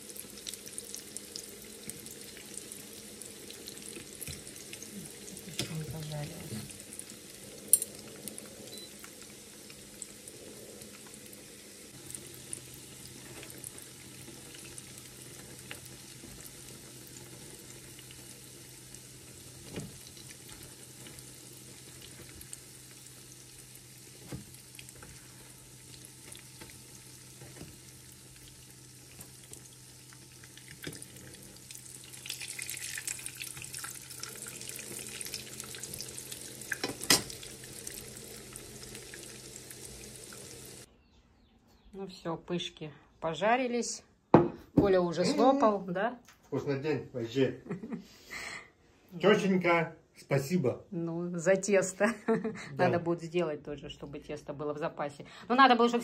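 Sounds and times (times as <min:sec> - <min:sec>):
pastries sizzling in oil: 0:00.0 - 0:40.9.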